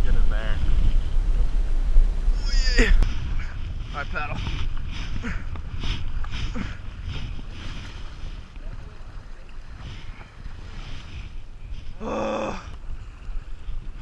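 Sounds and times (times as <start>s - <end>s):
wind buffeting microphone: 0.0s - 14.0s
paddle splashing in water: 3.0s - 12.0s.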